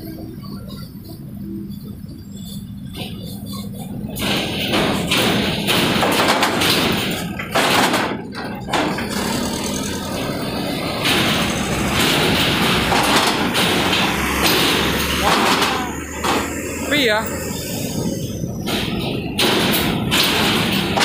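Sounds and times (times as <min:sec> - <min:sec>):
truck engines running: 0:00.0 - 0:21.0
wheels thumping over steel ramp: 0:02.4 - 0:16.9, 0:17.5 - 0:21.0.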